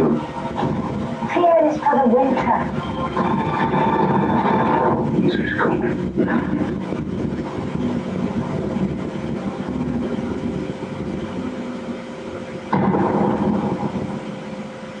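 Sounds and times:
low rumbling drone: 0.0s - 15.0s
loud cinematic hit: 12.7s - 14.7s.

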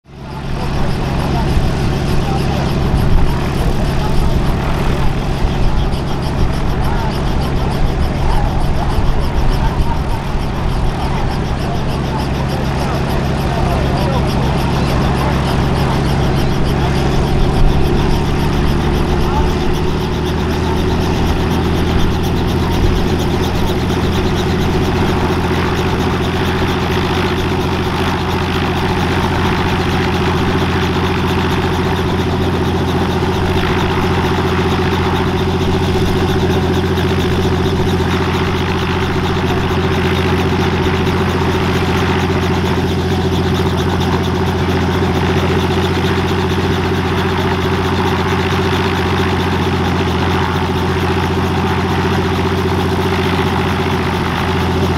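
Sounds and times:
helicopter engine and rotor drone: 0.0s - 54.9s.

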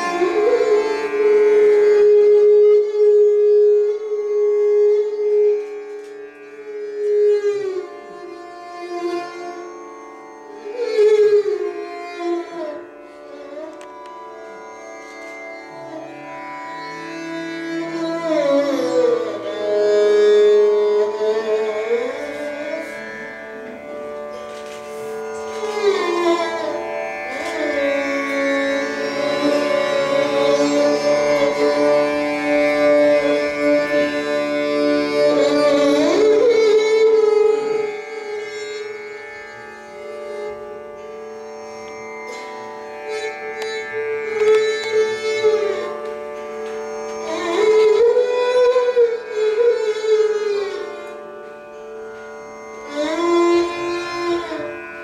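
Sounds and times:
bowed string melody: 0.0s - 55.0s.

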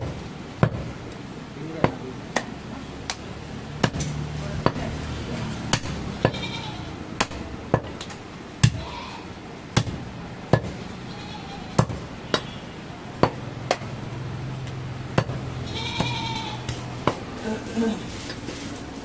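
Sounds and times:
cleaver chopping meat and bone: 0.0s - 0.9s, 3.1s - 5.0s, 5.6s - 6.4s, 7.2s - 8.9s, 9.8s - 10.8s, 11.8s - 12.6s, 13.2s - 14.0s, 14.6s - 17.3s.

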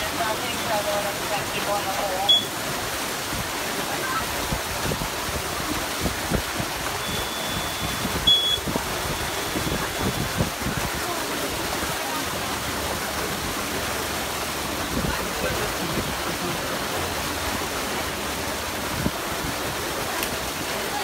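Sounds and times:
water gushing through slide tube: 0.0s - 21.0s
short high beep: 2.3s - 2.6s, 7.0s - 8.6s.

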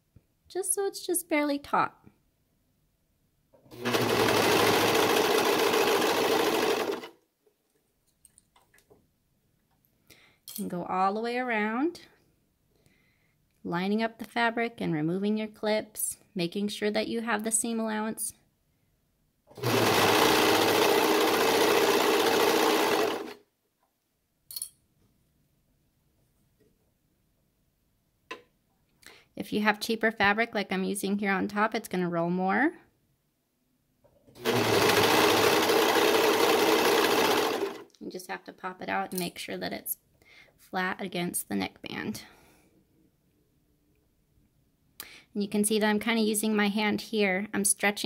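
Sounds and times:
overlock sewing machine running: 3.7s - 7.2s, 19.6s - 23.4s, 34.4s - 37.9s.

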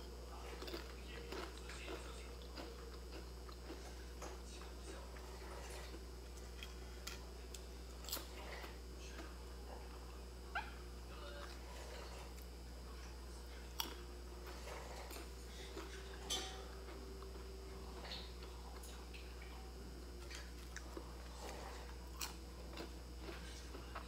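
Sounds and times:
soft chewing clicks: 0.0s - 10.8s, 12.3s - 24.0s
faint low hum: 0.0s - 24.0s
crunching crispy fried snack: 0.4s - 3.9s.

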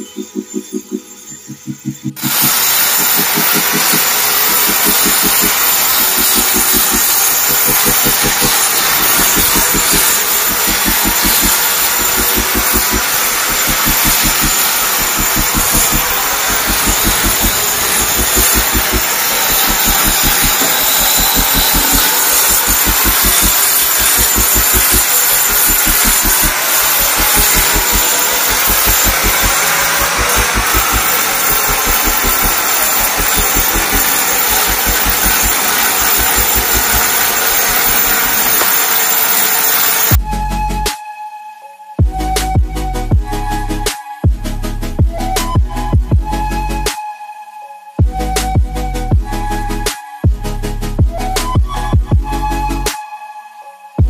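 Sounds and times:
angle grinder grinding concrete: 0.6s - 40.2s.

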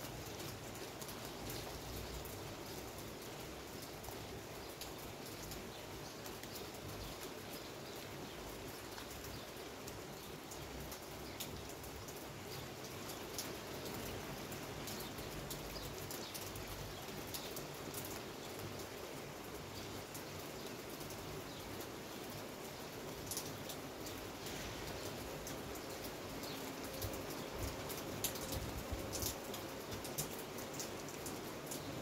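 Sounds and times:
raindrops ticking on hard surfaces: 0.0s - 32.0s
steady rain falling: 0.0s - 32.0s.

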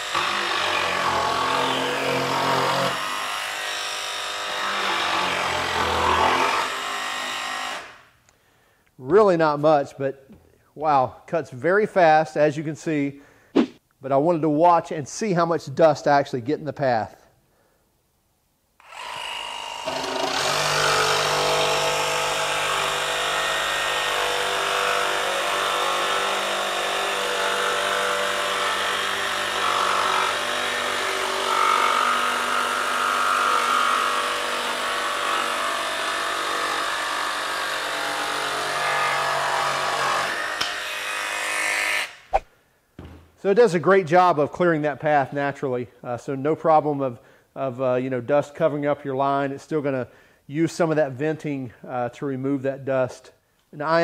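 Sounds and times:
jigsaw cutting through plywood: 0.0s - 8.0s, 18.8s - 42.1s.

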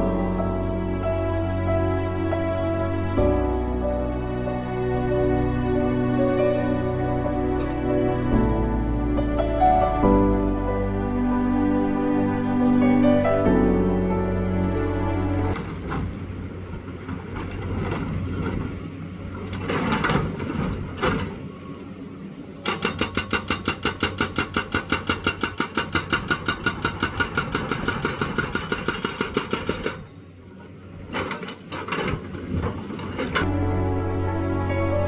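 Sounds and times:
hydraulic breaker hammering rock: 22.6s - 30.1s.

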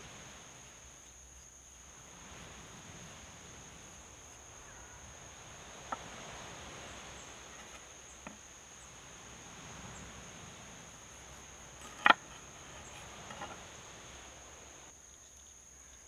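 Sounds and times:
insects trilling: 0.0s - 16.0s.

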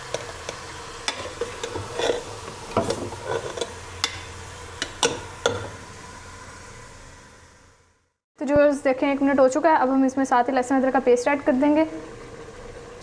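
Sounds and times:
ladle clinking and scraping pot: 0.0s - 5.8s
meat sizzling in hot oil: 0.0s - 7.9s.

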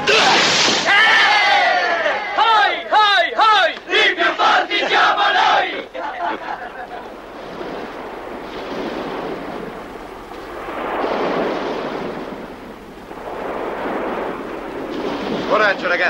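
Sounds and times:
sea surf washing onto beach: 3.9s - 16.0s.

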